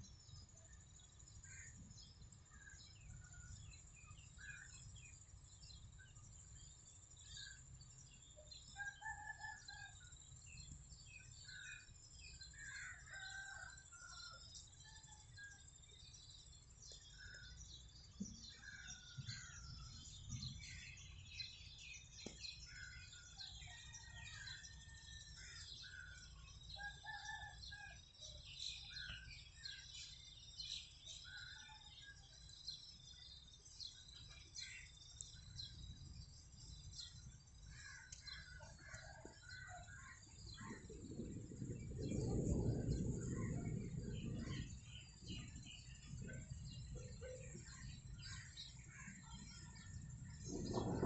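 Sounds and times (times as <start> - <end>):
birds chirping and calling: 36.7 - 51.0.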